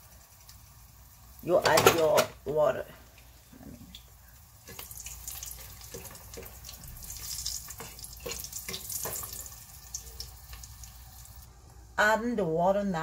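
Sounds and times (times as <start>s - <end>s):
garlic sizzling in hot oil: 0.0s - 11.6s.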